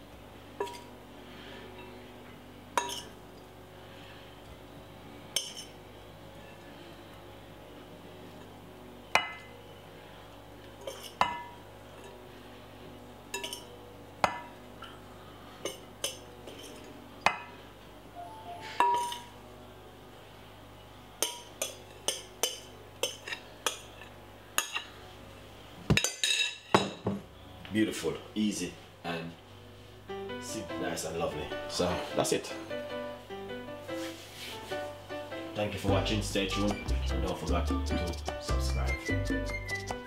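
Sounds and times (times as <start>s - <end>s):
metal spoon clinking against bowl: 13.4s - 13.7s.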